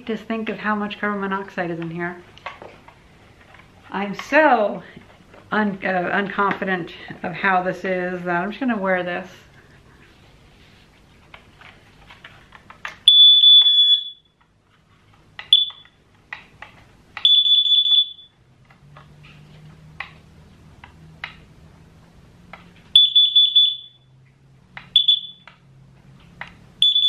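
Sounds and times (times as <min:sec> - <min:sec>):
alarm high-pitched beeps: 0:13.1 - 0:14.3, 0:15.5 - 0:15.9, 0:17.3 - 0:18.4, 0:23.0 - 0:24.1, 0:25.0 - 0:25.4.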